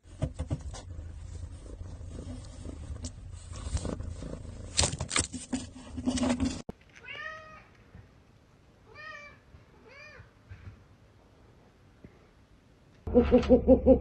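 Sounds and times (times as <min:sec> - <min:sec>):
knocking and scraping: 0:00.0 - 0:06.7.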